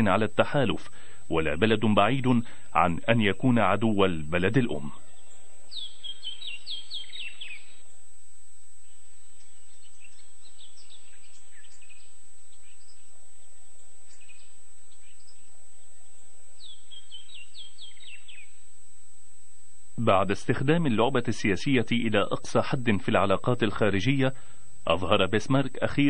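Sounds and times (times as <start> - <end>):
songbird chirping: 0.0 - 18.8
steady background noise: 0.0 - 26.0.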